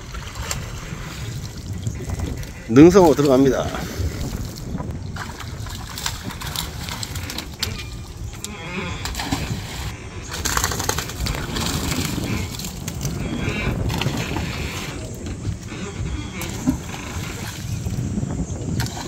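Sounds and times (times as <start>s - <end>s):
steady low rumble: 0.0s - 19.0s
fish splashing into water: 4.1s - 14.5s.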